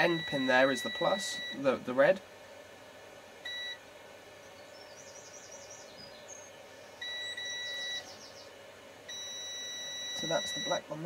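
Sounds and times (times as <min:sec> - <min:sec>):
multimeter beeping: 0:00.0 - 0:01.7, 0:03.5 - 0:03.8, 0:07.0 - 0:08.1, 0:09.1 - 0:10.8.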